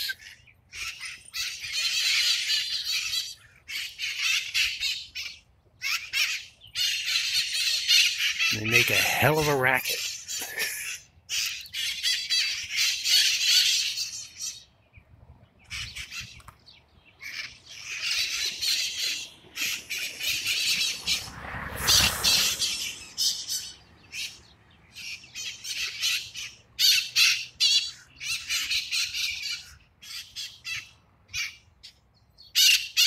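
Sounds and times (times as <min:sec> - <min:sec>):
parrots calling harshly: 0:00.0 - 0:14.7, 0:17.2 - 0:31.6, 0:32.5 - 0:33.0
brief rush of noise: 0:20.2 - 0:23.7.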